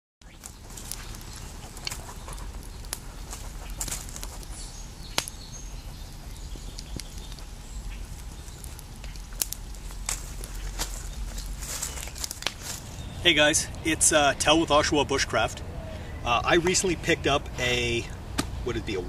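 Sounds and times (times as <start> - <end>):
campfire crackling: 0.2 - 19.0
low steady rumble: 0.3 - 19.0
sharp pops: 5.1 - 5.4, 12.0 - 12.8.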